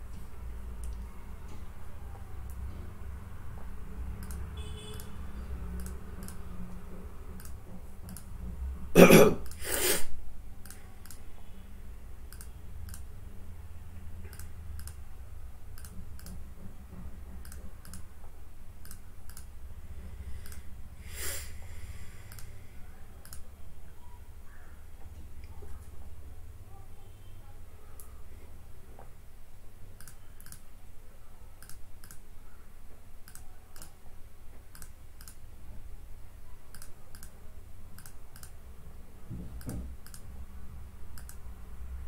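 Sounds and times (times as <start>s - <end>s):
faint clicks: 0.8s - 2.7s, 4.2s - 5.1s, 7.4s - 8.3s, 12.3s - 13.1s, 14.2s - 15.0s, 15.7s - 16.4s, 18.8s - 19.5s, 22.3s - 22.6s, 23.2s - 23.5s, 30.0s - 30.7s, 31.6s - 32.3s, 33.2s - 35.4s, 36.7s - 37.4s, 38.0s - 38.6s, 39.6s - 40.3s, 41.1s - 41.4s.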